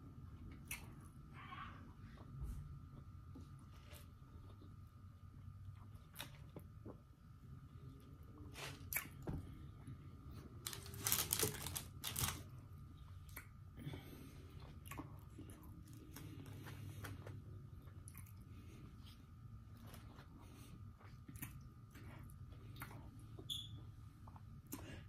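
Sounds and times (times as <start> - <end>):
chewing and crunching food: 2.0 - 23.5
wrapper handling clicks: 10.6 - 12.4.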